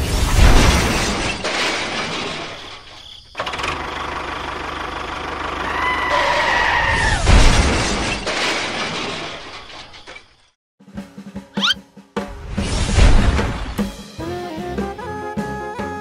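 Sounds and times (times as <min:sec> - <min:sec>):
loud crash: 0:00.0 - 0:03.0, 0:07.1 - 0:10.3
high tyre squeal: 0:05.6 - 0:07.2.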